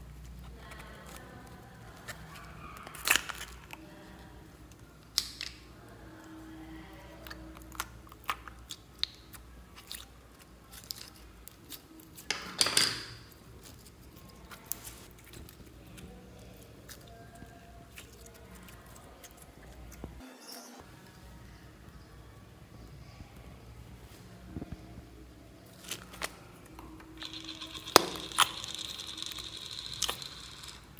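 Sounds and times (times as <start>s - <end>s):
slime squish: 0.0s - 12.3s, 13.3s - 20.2s, 25.6s - 30.9s
slime crackling and popping: 0.4s - 4.0s, 25.8s - 30.9s.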